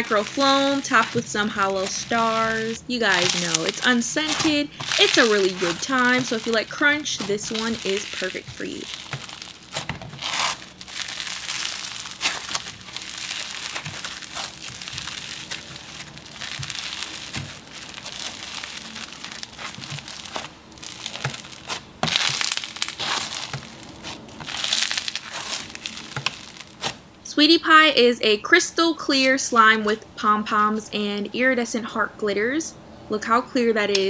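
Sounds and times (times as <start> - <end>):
crunchy slime squeezed by hand: 0.2 - 27.0.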